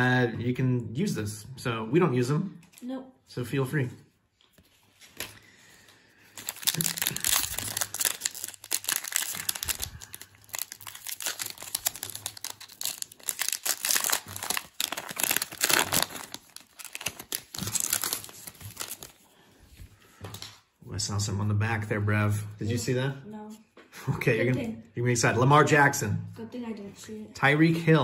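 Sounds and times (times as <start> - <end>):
foil wrapper tearing and crinkling: 6.3 - 19.2.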